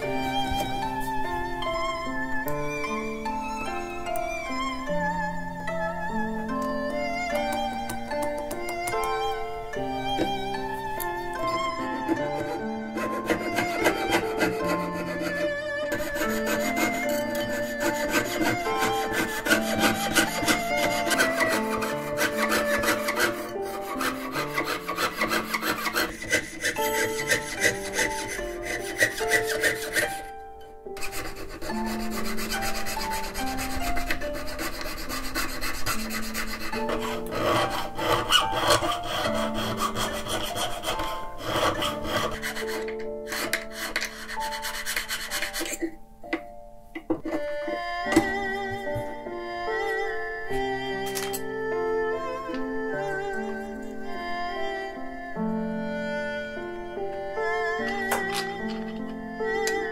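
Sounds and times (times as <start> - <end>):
background music: 0.0 - 59.9
fret saw cutting metal sheet: 12.0 - 30.3, 31.0 - 45.9.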